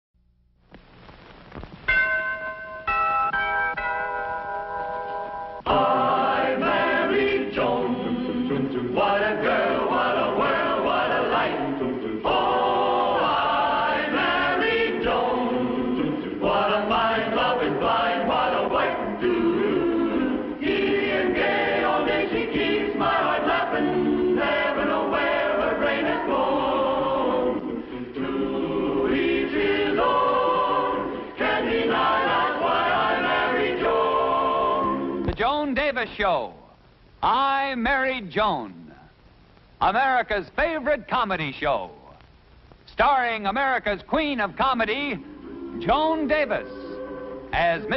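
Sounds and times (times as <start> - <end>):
choir singing: 5.6 - 35.3, 45.1 - 47.9.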